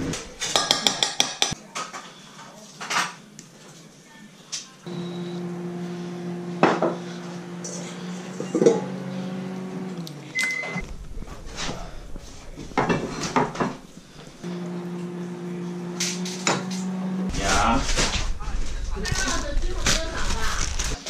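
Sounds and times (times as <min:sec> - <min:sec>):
dishes clinking and knocking: 0:00.1 - 0:01.9
kitchen appliance humming: 0:04.9 - 0:21.0
short high beep: 0:05.0 - 0:05.4.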